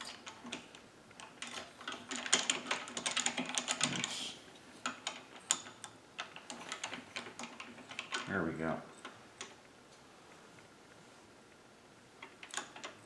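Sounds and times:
wood and metal clicking: 0.0 - 4.1, 4.8 - 8.3, 12.2 - 13.0.

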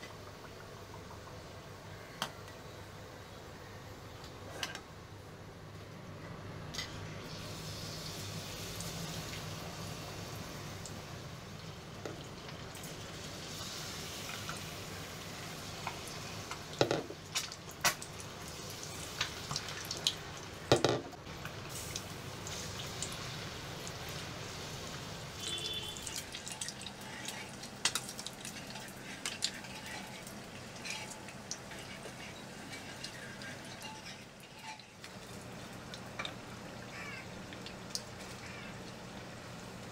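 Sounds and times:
eggs deep-frying in oil: 0.0 - 3.4, 6.6 - 39.9
oil popping and crackling: 11.6 - 39.9.

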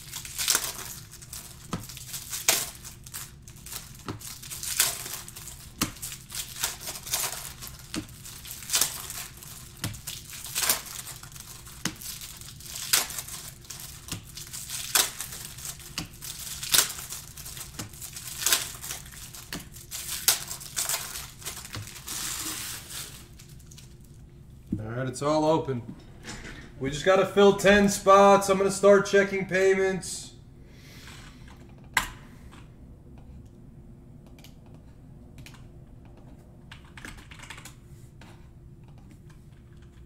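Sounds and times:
wrapper tearing rip: 0.0 - 23.9
foil wrappers crinkling: 0.0 - 24.2.

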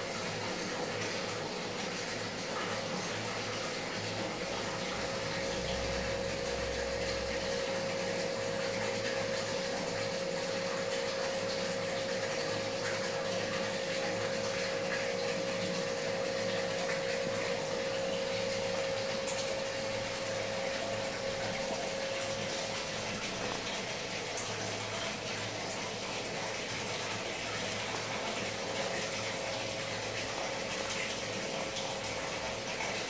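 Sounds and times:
aquarium filter water rushing: 0.0 - 33.0
steady hum: 3.0 - 25.7.

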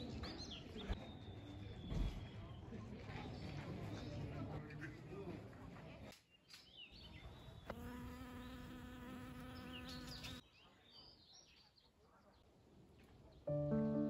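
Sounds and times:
honeybee buzzing: 7.7 - 10.4.

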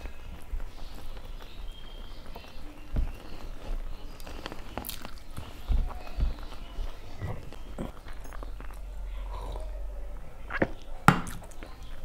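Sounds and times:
chewing and squelching food: 0.0 - 12.0.

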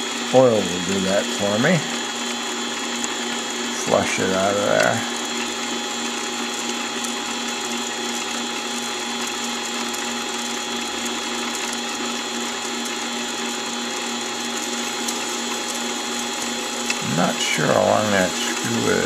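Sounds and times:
lathe motor whine: 0.0 - 19.0.

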